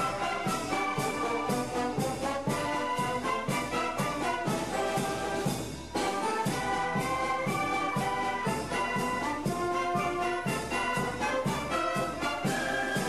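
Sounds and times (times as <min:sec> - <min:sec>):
brass band music: 0:00.0 - 0:13.0
steady drum beat: 0:00.0 - 0:13.0.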